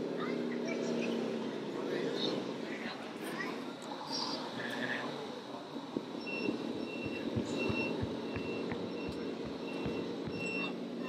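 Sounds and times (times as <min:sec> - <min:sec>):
reversing warning beeper: 0:06.2 - 0:10.8
soft low thumps: 0:07.0 - 0:10.5.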